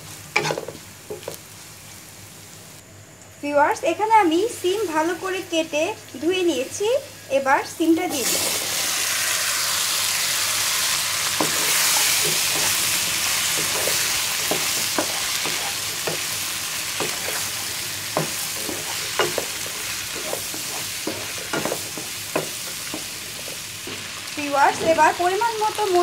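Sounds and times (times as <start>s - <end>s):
beans sizzling in hot oil: 0.0s - 2.8s, 3.4s - 26.0s
spatula scraping pan: 0.4s - 1.4s, 11.3s - 25.1s.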